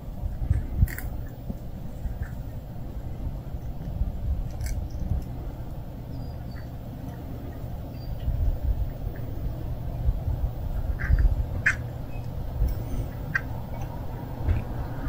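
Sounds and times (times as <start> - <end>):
low rumble: 0.0 - 15.0
kitten crunching food: 0.3 - 5.6.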